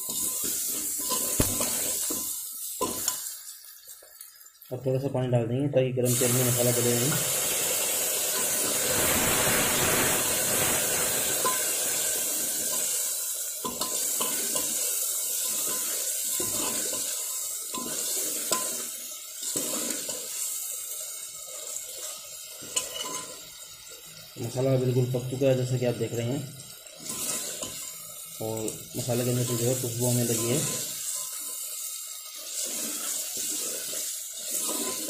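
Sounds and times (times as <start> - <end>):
steel ladle stirring: 0.0 - 3.4, 10.5 - 20.5, 21.9 - 23.4, 26.9 - 28.0, 32.3 - 35.0
masala sizzling and bubbling: 0.0 - 35.0.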